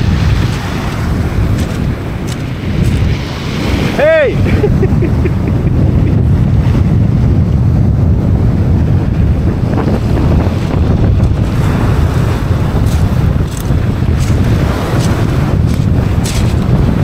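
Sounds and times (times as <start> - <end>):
waves breaking on shingle: 0.0 - 4.4, 10.4 - 17.0
wind buffeting microphone: 0.0 - 17.0.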